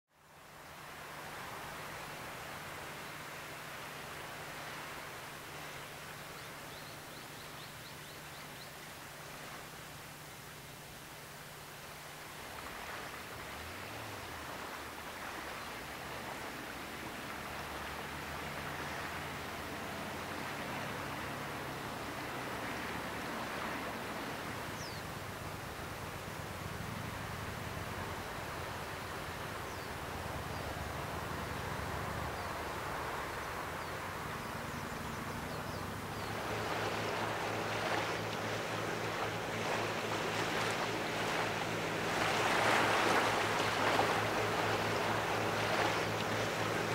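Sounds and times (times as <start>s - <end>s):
wind: 0.1s - 46.9s
boat wake splashing: 0.2s - 46.9s
rushing outdoor ambience: 0.2s - 46.9s
motorboat engine: 0.3s - 46.9s
faint bird chirps: 24.8s - 25.1s.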